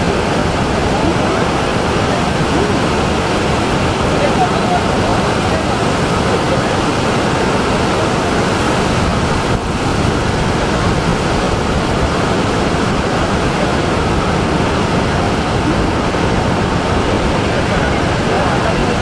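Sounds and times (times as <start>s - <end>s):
heavy surf breaking: 0.0s - 19.0s.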